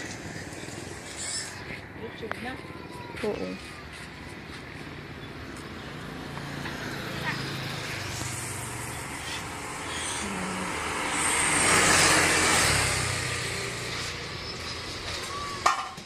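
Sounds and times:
vehicle passing by: 3.6 - 15.6.

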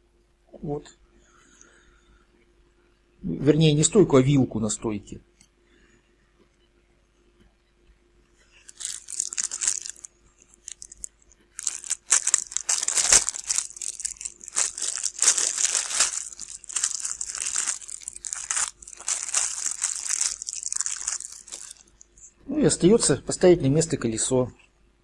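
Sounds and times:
plastic parts rustling and scraping: 8.5 - 22.3.

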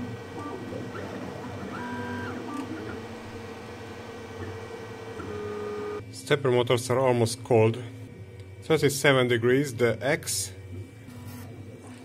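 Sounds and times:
stepper motors whining: 0.0 - 6.1
steady mechanical hum: 0.0 - 12.0.

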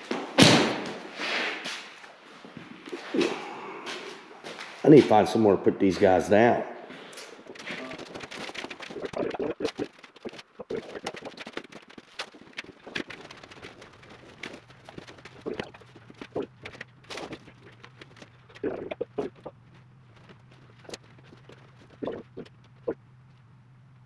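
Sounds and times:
objects knocking and clattering: 7.4 - 19.5.

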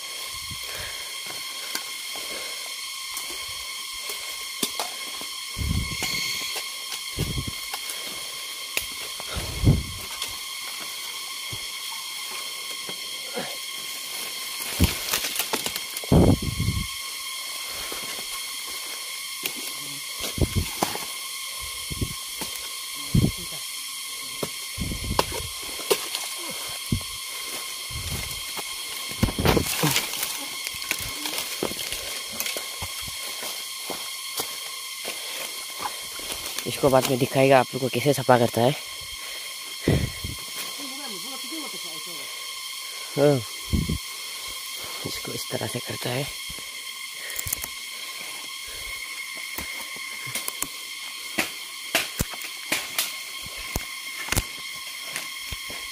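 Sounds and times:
bamboo and leaves rustling: 0.0 - 55.9
insect chorus drone: 0.0 - 55.9
steady high hiss: 0.0 - 55.9.

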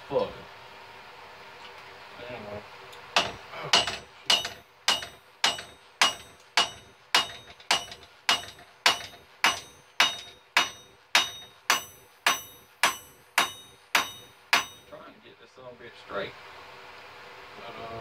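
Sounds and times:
hammer blows on anvil: 3.2 - 15.0.

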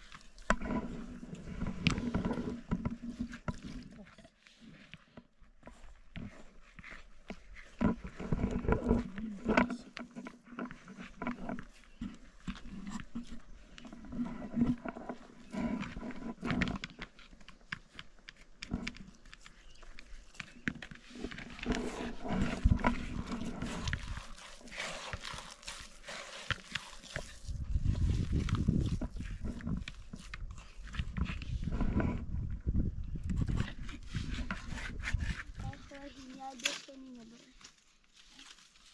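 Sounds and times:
rustling: 33.5 - 38.9.

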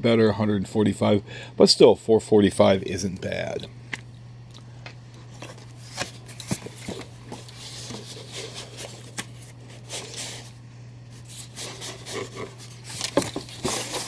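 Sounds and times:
steady low hum: 0.0 - 14.0
cardboard box and packing handled: 5.4 - 10.5, 11.4 - 14.0.

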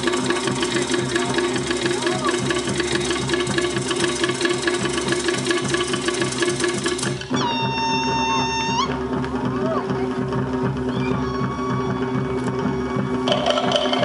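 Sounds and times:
deeper drums: 0.0 - 14.0
slit log drums sharp strokes: 0.0 - 14.0.

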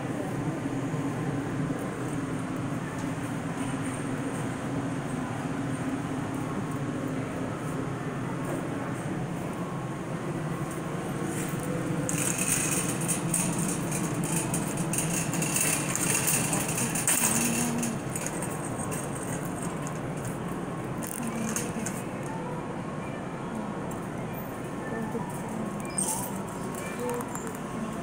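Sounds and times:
steady background hum: 0.0 - 28.0
shopping cart rattling on concrete: 12.0 - 22.0.

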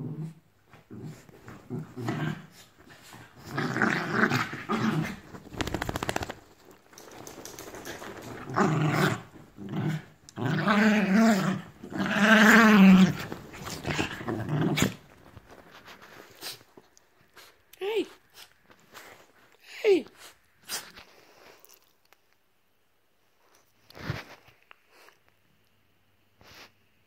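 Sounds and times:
dogs growling: 0.0 - 6.4, 7.8 - 15.3.

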